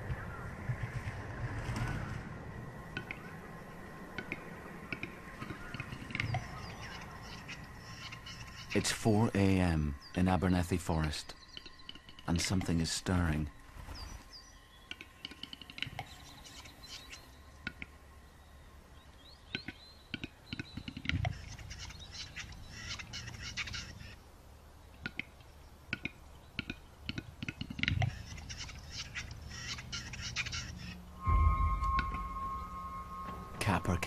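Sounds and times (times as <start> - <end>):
deep popping notes: 31.2 - 34.0.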